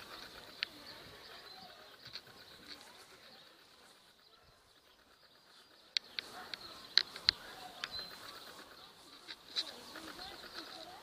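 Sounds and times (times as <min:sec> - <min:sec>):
faint high bird chirps: 0:00.0 - 0:11.0
sharp clicks and taps: 0:05.9 - 0:11.0.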